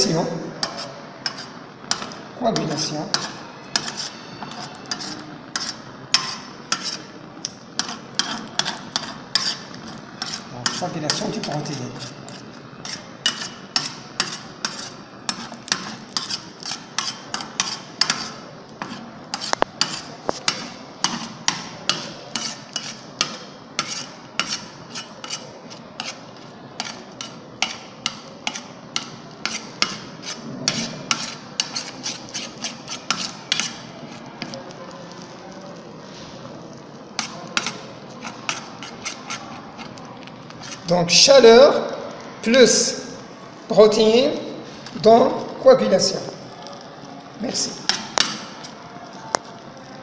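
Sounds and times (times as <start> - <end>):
metal spoon scraping steel tray: 0.6 - 7.1, 7.8 - 34.6, 37.2 - 40.0, 40.6 - 41.2.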